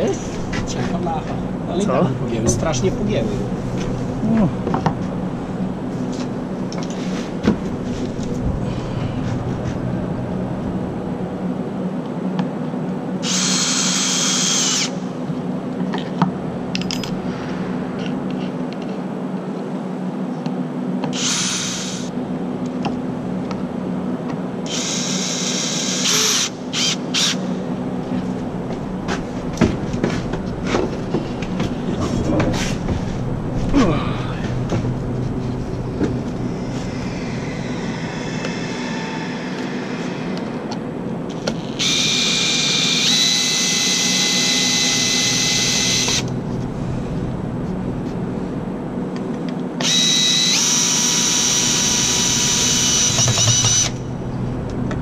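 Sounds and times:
steady low hum: 0:00.0 - 0:55.0
drill driving screws: 0:13.2 - 0:15.0, 0:21.1 - 0:22.1, 0:24.7 - 0:27.4, 0:41.8 - 0:46.2, 0:49.8 - 0:54.0.

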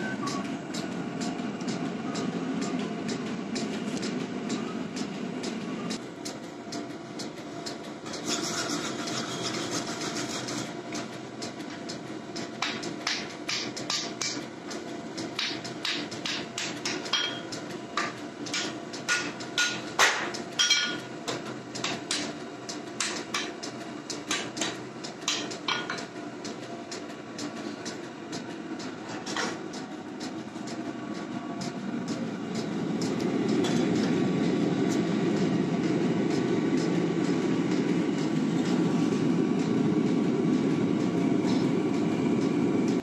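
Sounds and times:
forge burner running: 0:00.0 - 0:43.0
hammer striking steel on anvil: 0:15.4 - 0:21.1, 0:25.3 - 0:26.1.

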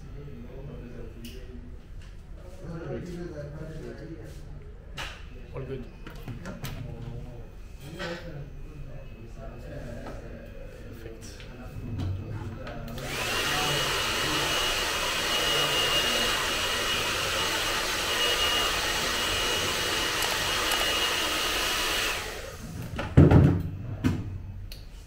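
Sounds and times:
hair dryer blowing: 0:13.0 - 0:22.9
loud knock: 0:23.0 - 0:24.2.

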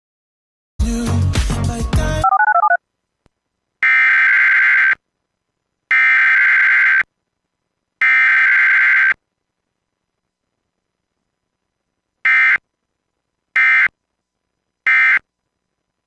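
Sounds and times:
short paired beeps: 0:02.2 - 0:02.8.

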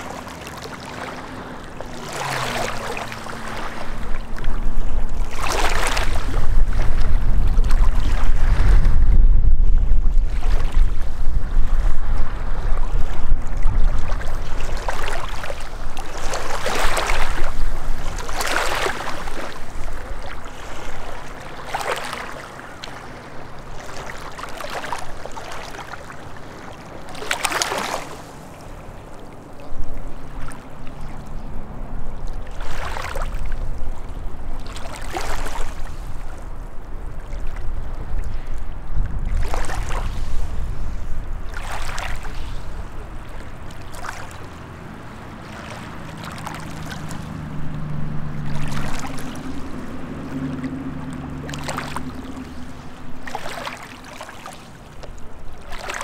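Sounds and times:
small waves lapping on stones: 0:00.0 - 0:04.5, 0:05.3 - 0:07.1, 0:14.0 - 0:28.5, 0:32.5 - 0:33.5, 0:34.6 - 0:36.3, 0:41.5 - 0:44.5, 0:45.4 - 0:47.5, 0:48.3 - 0:49.5, 0:51.1 - 0:56.0.

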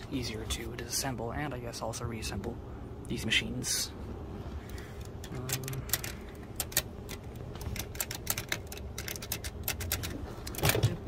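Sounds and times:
typewriter mechanism clicking: 0:05.2 - 0:11.0.

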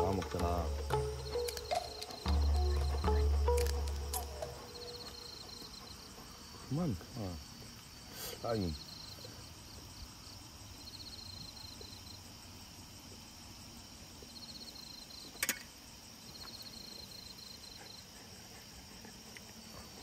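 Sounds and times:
insect calling in rapid pulses: 0:00.0 - 0:07.5.

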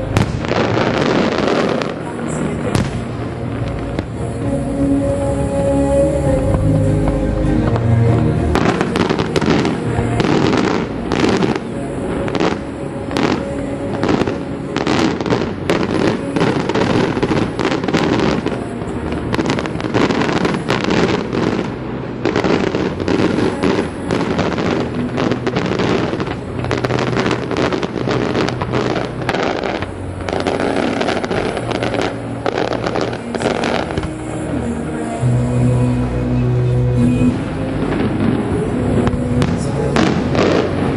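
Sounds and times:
fireworks bangs and crackling: 0:00.0 - 0:04.5, 0:06.4 - 0:35.4, 0:37.0 - 0:40.9.

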